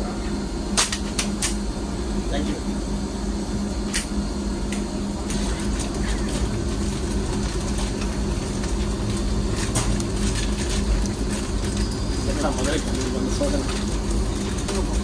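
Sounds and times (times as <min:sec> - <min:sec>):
snack packet crackling: 0:05.3 - 0:15.0.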